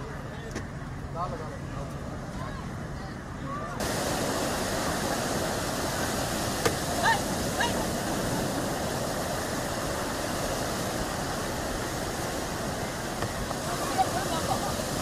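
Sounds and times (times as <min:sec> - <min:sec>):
sea waves breaking on beach: 0:03.8 - 0:15.0.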